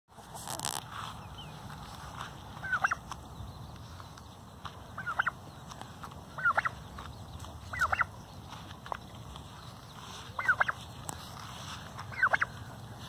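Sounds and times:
turkey calling: 0:02.6 - 0:03.1, 0:04.8 - 0:13.0.

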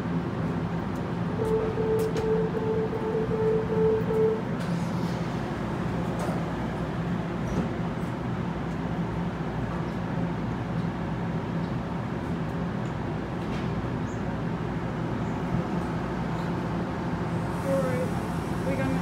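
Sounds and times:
train low hum: 0:00.0 - 0:19.0
door-closing warning beeps: 0:01.4 - 0:04.4.

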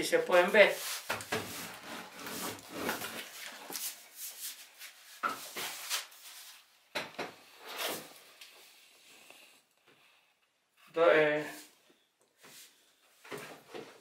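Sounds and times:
hands rubbing cardboard tube: 0:00.4 - 0:06.6.

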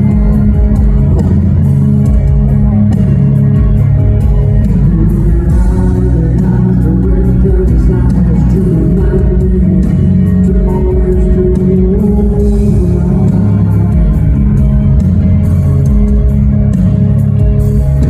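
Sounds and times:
rock band playing live: 0:00.0 - 0:18.0
man singing: 0:04.6 - 0:15.0.

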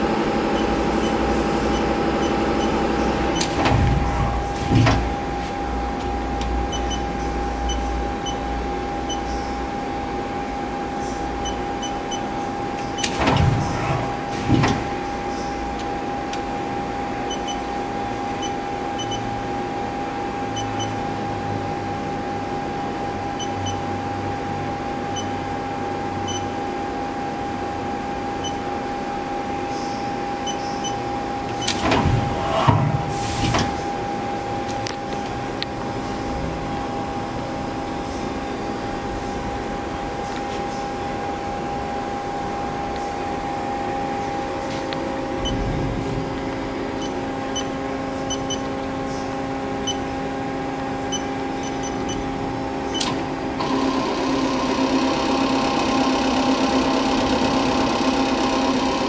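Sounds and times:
tool turret clunks: 0:03.4 - 0:05.3.

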